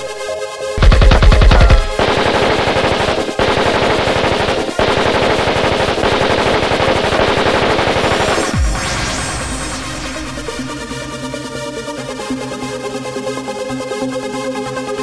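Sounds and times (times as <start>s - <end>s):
automatic rifle fire: 0.8s - 10.7s.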